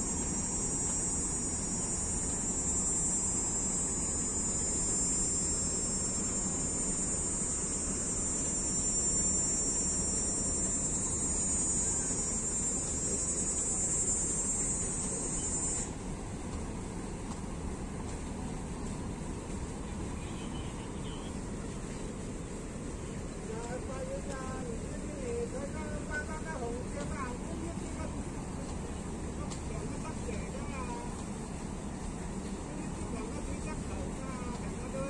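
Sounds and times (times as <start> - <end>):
high-pitched insect chorus: 0.0 - 15.9.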